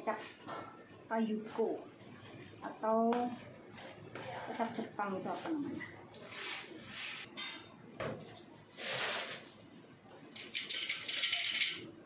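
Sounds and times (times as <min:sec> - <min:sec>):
cookware and utensils clattering: 0:07.2 - 0:08.4, 0:10.4 - 0:11.9.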